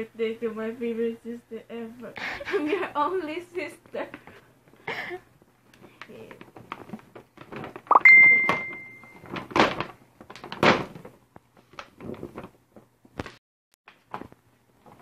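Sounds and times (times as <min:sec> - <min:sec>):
high steady tone: 0:07.9 - 0:09.2.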